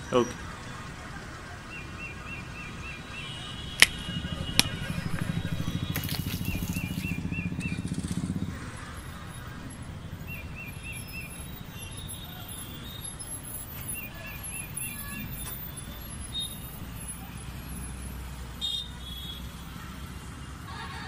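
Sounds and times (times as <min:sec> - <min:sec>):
low traffic hum: 0:00.0 - 0:21.0
bird chirping: 0:01.7 - 0:08.4, 0:09.0 - 0:17.2
loud low pulsing engine: 0:03.6 - 0:10.3.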